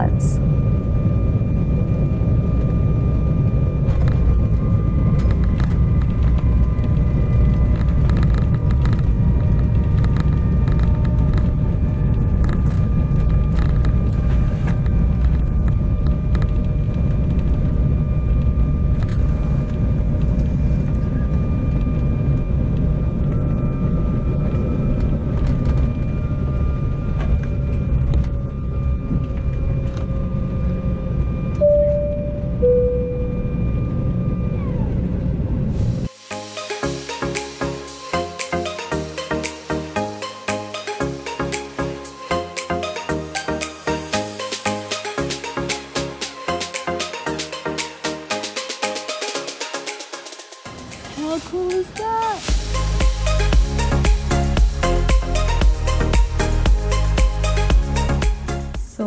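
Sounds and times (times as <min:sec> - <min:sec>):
jet cabin rumble: 0:00.0 - 0:36.1
jet engine whine: 0:00.0 - 0:55.6.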